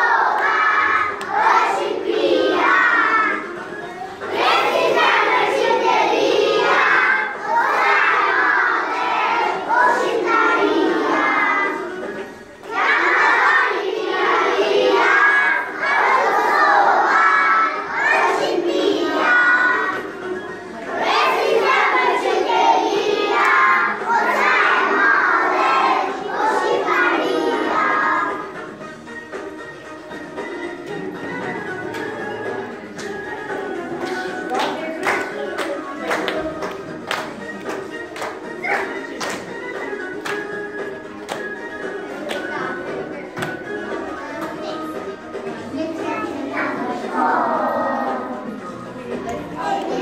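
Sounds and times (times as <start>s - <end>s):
children singing loudly in chorus: 0.0s - 3.5s, 4.2s - 11.9s, 12.7s - 20.1s, 21.0s - 28.5s, 46.2s - 48.6s, 49.5s - 50.0s.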